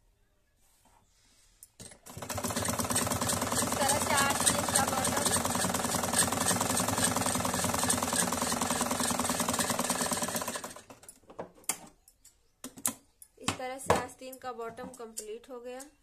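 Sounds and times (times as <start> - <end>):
sewing machine stitching: 1.8 - 11.1.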